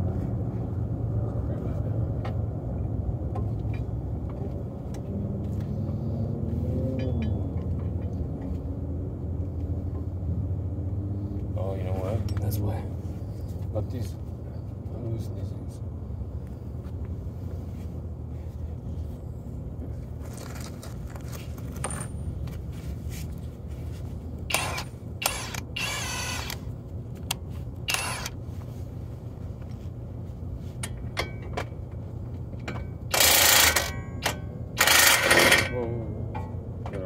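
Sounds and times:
steady low hum: 0.0 - 37.0
metal tools clinking and clanking: 7.0 - 8.1, 21.7 - 22.2, 32.6 - 36.6.

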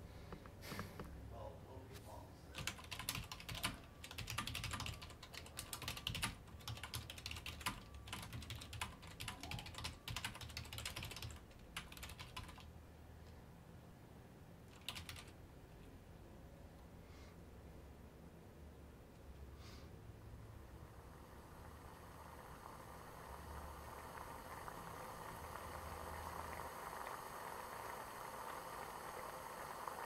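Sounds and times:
low steady hum: 0.0 - 30.0
typing on computer keyboard: 2.6 - 12.7, 14.7 - 15.4.

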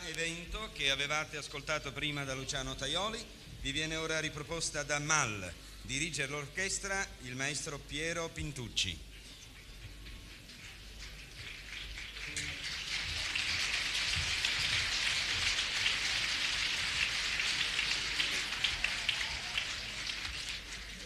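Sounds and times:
audience applauding: 9.8 - 21.0.

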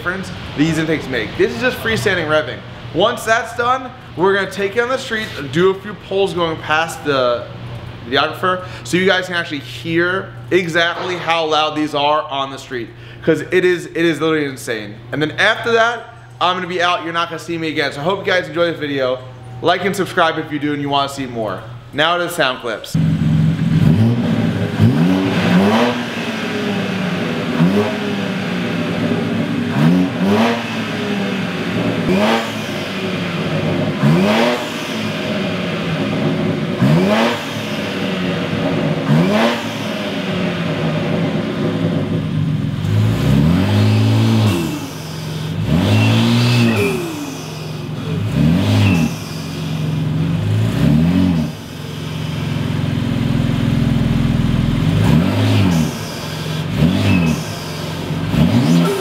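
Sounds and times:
car engine revving: 0.0 - 8.0, 23.0 - 59.0.

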